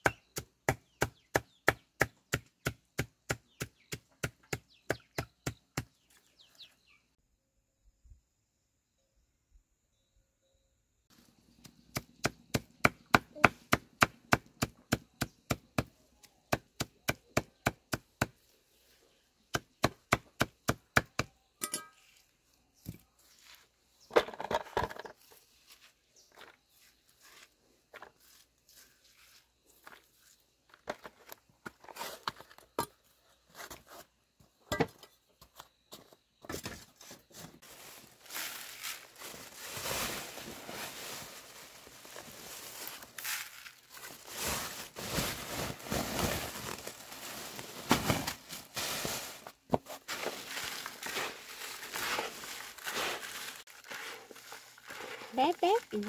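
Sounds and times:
rustling: 0:37.3 - 0:56.0.

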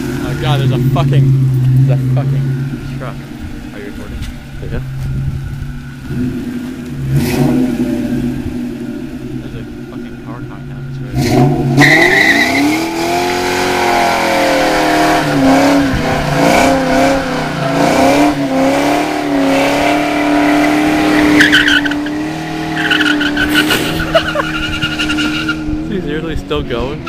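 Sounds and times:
car engine revving: 0:00.0 - 0:27.0
tyre squeal: 0:20.4 - 0:25.7.

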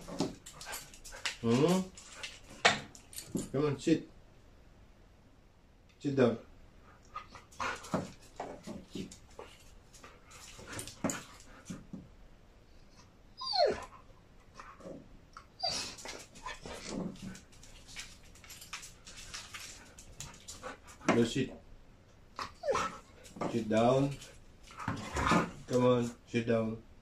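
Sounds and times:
husky vocalizing: 0:22.4 - 0:23.4.

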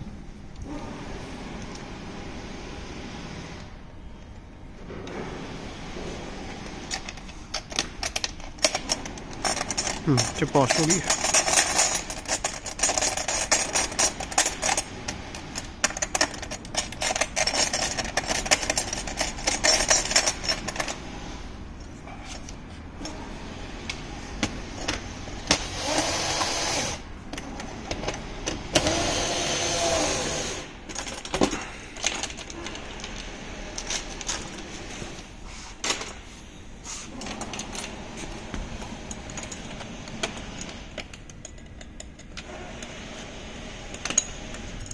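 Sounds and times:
metal tools clinking: 0:07.0 - 0:14.9, 0:15.6 - 0:21.0, 0:37.1 - 0:42.4.

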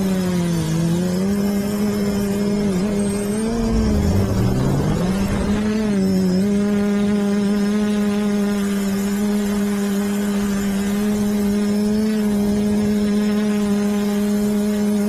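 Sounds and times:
drone propellers whining: 0:00.4 - 0:07.9.

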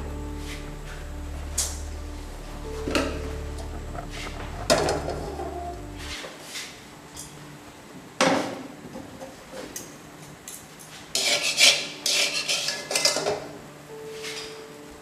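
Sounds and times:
utensils scraping steel pan: 0:11.2 - 0:13.1.

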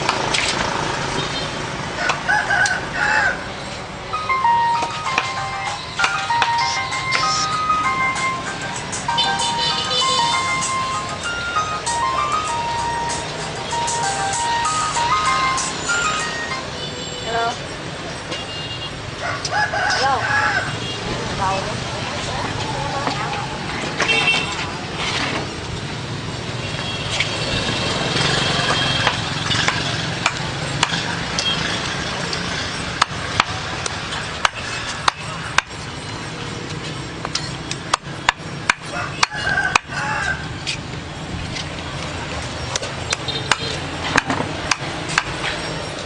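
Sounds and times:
steady background noise: 0:00.0 - 0:46.0.

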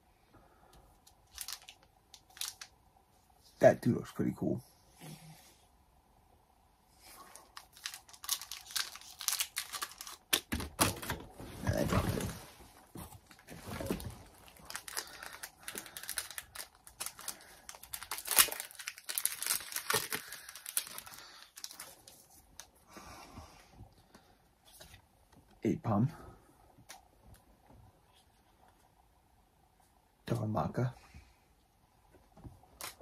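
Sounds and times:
foil wrappers crinkling and tearing: 0:01.2 - 0:02.7, 0:07.4 - 0:12.4, 0:13.2 - 0:22.7.

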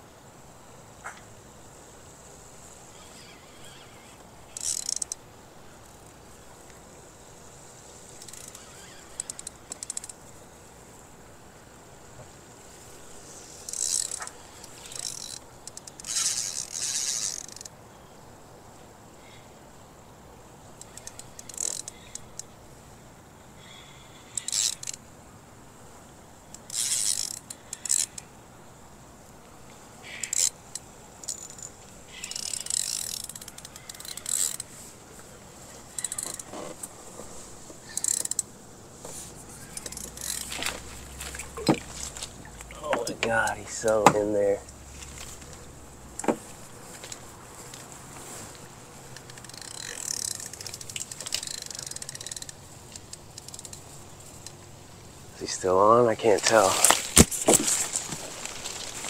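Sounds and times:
fishing reel clicking: 0:04.5 - 0:05.2, 0:08.2 - 0:10.2, 0:13.7 - 0:17.7, 0:20.8 - 0:22.5, 0:24.3 - 0:25.0, 0:26.5 - 0:28.3, 0:30.1 - 0:34.7, 0:35.9 - 0:36.5, 0:37.9 - 0:38.5, 0:39.6 - 0:40.8, 0:49.2 - 0:54.6.

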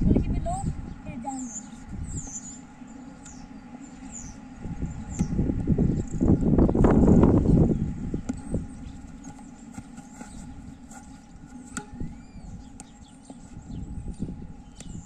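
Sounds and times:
wind rumble on microphone: 0:00.0 - 0:02.6, 0:03.9 - 0:09.3, 0:10.3 - 0:15.0
tennis racket striking ball: 0:09.2 - 0:12.1.

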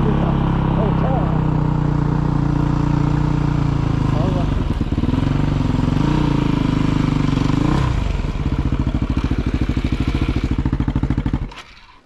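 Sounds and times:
dirt bike engine puttering: 0:00.0 - 0:12.0.

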